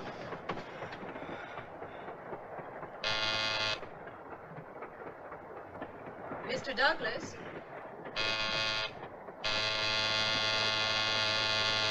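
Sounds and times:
train rumbling on track: 0.0s - 11.9s
train horn blast: 3.0s - 3.8s, 8.2s - 11.9s.

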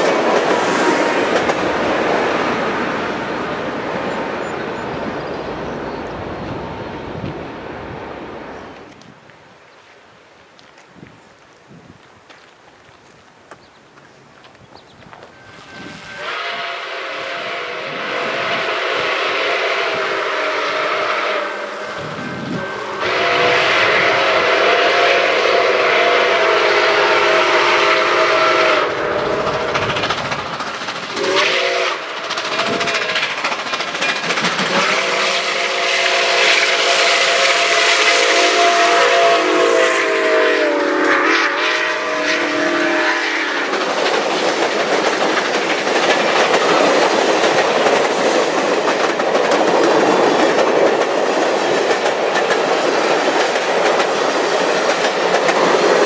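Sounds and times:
train cars clickety-clack on rails: 0.0s - 6.6s, 22.1s - 40.5s, 41.1s - 56.0s
steam whistle blasts: 15.3s - 30.0s, 31.1s - 33.3s, 34.7s - 43.8s.

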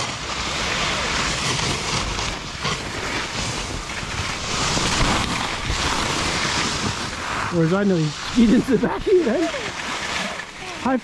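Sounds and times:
wind on microphone: 0.0s - 10.7s
snowboard scraping snow: 0.0s - 11.0s.

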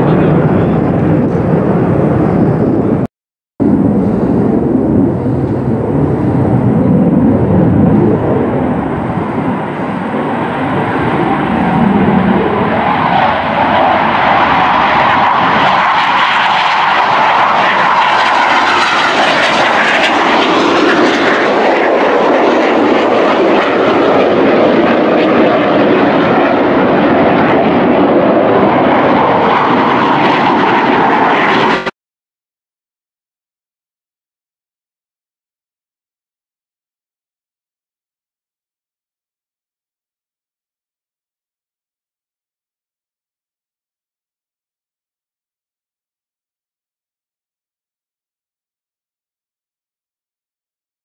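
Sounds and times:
jet flying overhead: 0.0s - 32.0s.

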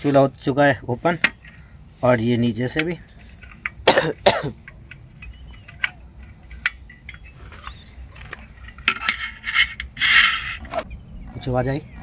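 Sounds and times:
crickets chirping: 0.0s - 12.0s
metal stove parts clicking: 2.6s - 3.8s, 4.5s - 10.8s
handling noise: 2.6s - 11.5s.

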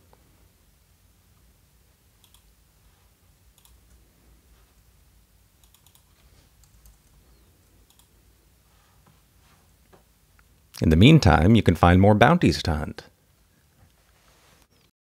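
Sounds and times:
faint computer clicks: 2.2s - 2.5s, 3.5s - 4.0s, 5.6s - 8.2s.

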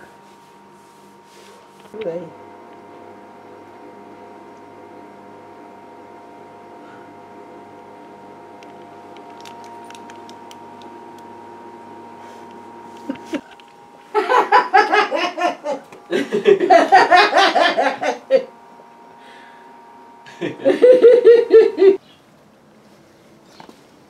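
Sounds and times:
faint steady hum: 0.0s - 23.4s
person laughing: 13.0s - 13.5s, 14.1s - 18.5s, 20.2s - 22.0s.

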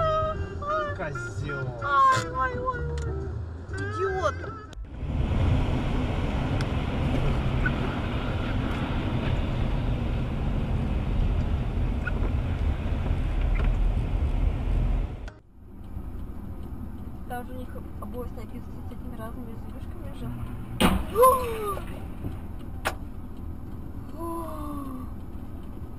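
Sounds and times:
car driving rumble: 0.0s - 25.9s
quiet road noise: 0.0s - 25.9s.

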